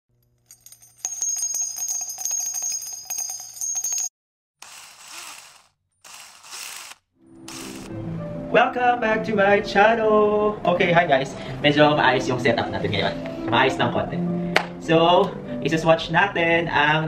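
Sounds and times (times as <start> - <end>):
metallic bell jingling: 0.4 - 4.1.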